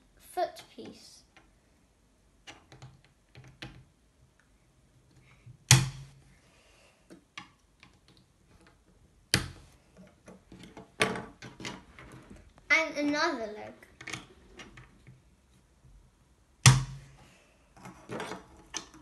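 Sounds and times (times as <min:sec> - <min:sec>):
sharp knocks: 0:16.6 - 0:17.1.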